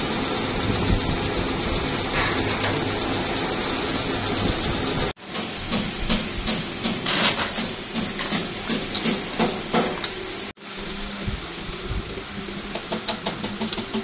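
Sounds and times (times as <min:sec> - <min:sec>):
machine hum: 0:00.0 - 0:05.4.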